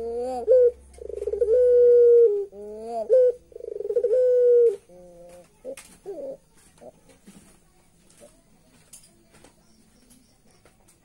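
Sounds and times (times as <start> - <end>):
dove stuttering and cooing: 0.0 - 7.4.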